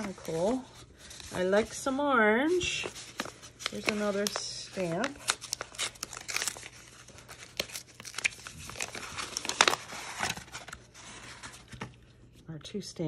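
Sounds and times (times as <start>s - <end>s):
plastic packaging crinkling: 2.5s - 12.1s.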